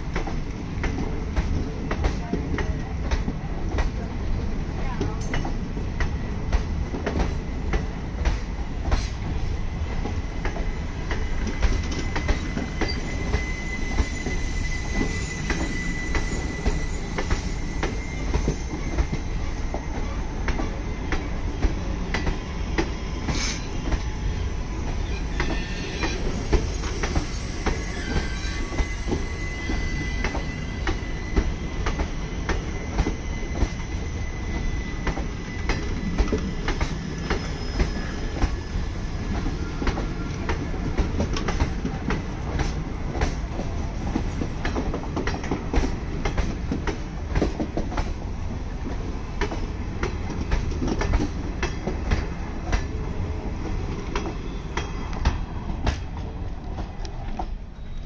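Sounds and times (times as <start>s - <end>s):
train wheels rumbling: 0.0s - 58.0s
high wheel squeal: 10.6s - 20.2s, 24.8s - 40.4s.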